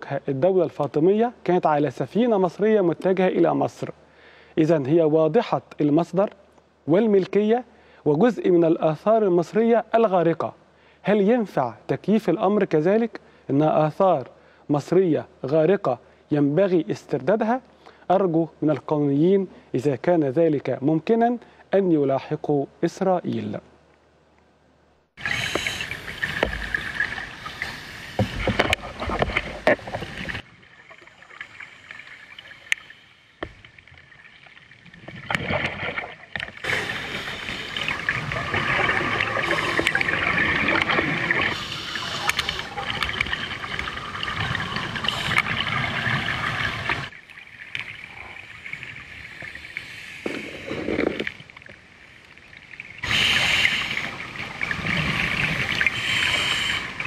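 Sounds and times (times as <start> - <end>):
rushing underwater noise: 25.2 - 57.0.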